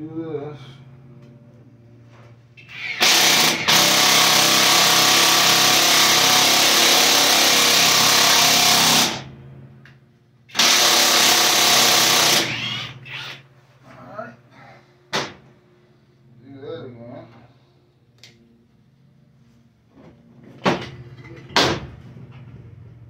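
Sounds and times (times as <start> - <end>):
cordless drill drilling into wood: 2.6 - 9.3, 10.5 - 13.4.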